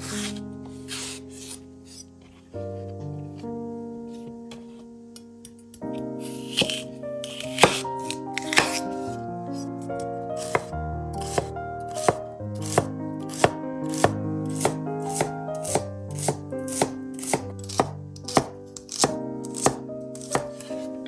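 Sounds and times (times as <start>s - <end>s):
background music: 0.0s - 21.0s
knife chopping on wooden board: 6.4s - 8.8s, 10.4s - 20.8s.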